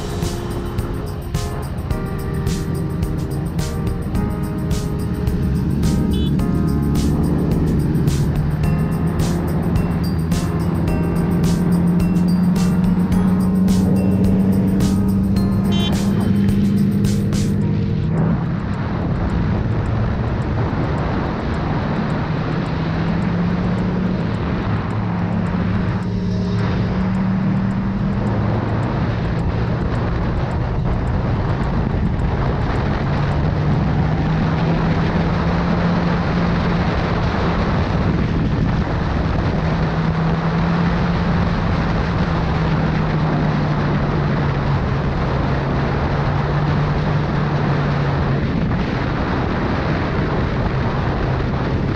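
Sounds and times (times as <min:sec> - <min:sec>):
motorcycle engine running: 0:02.6 - 0:20.4
wind rush over microphone: 0:17.6 - 0:51.9.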